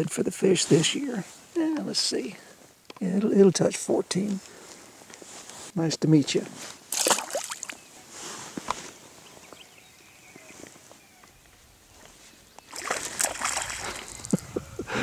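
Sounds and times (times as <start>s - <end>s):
water splashing and sloshing: 6.9s - 7.8s, 12.7s - 14.4s.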